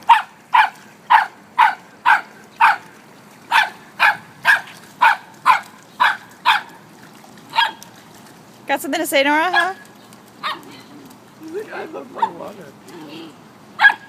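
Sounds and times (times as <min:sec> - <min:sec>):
puppy barking: 0:00.0 - 0:02.9, 0:03.5 - 0:06.8, 0:07.5 - 0:07.8, 0:09.5 - 0:09.8, 0:10.4 - 0:10.8, 0:12.2 - 0:12.5, 0:13.8 - 0:14.0.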